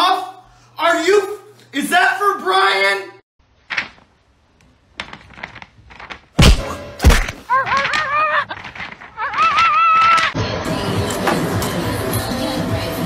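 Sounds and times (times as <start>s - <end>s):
heavy thuds: 5.0s - 10.2s.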